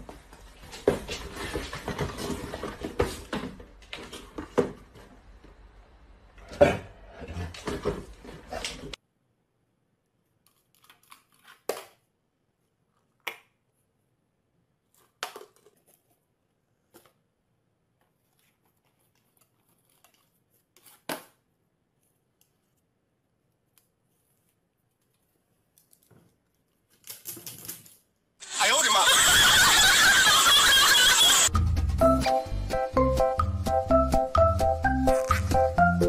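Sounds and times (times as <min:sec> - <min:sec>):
cardboard boxes clicking and rustling: 0:00.8 - 0:04.9.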